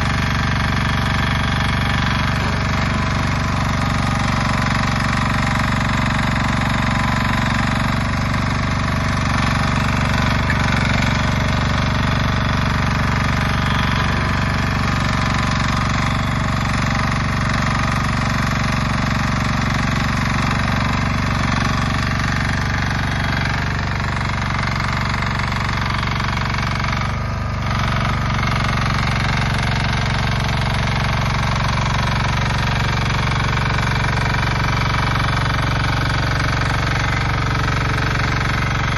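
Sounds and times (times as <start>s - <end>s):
diesel engine running: 0.0s - 38.9s.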